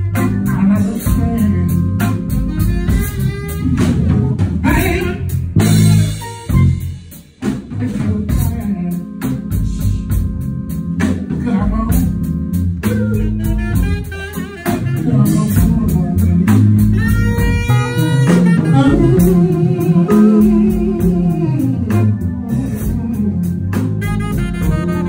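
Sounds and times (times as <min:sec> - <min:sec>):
saxophone: 0:00.0 - 0:07.0, 0:11.4 - 0:25.0
drum kit: 0:00.0 - 0:25.0
electric guitar: 0:10.9 - 0:25.0.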